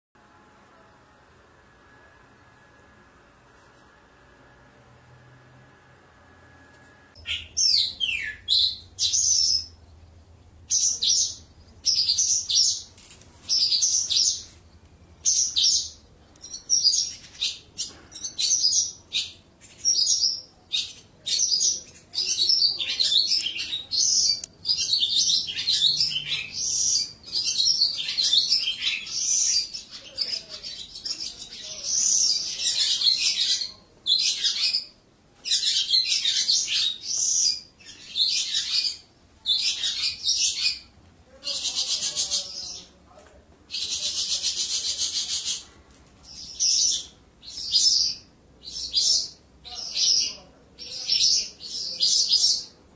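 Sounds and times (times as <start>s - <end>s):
lark singing: 7.2s - 9.8s.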